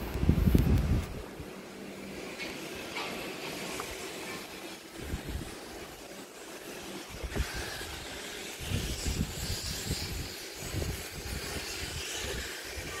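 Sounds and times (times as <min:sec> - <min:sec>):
wind buffeting microphone: 0:00.0 - 0:01.6, 0:05.0 - 0:05.8, 0:07.1 - 0:13.0.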